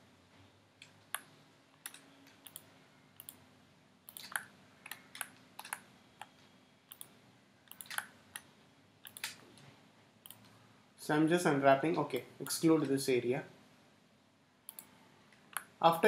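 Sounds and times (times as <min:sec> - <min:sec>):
computer mouse clicking: 0:00.8 - 0:03.4, 0:04.1 - 0:09.6, 0:10.2 - 0:10.6, 0:14.7 - 0:15.7.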